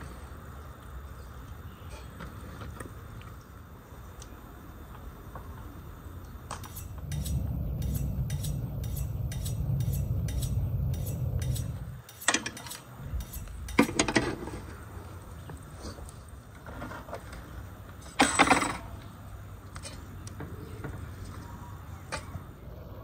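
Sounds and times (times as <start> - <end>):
metal skewers clinking on grill: 6.6 - 14.2
low rumble with regular ticking: 6.9 - 12.0.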